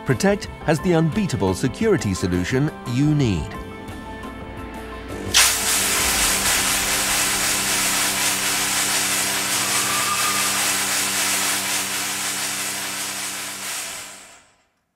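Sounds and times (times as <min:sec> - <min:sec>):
fog cannon hissing spray: 0:05.3 - 0:14.5.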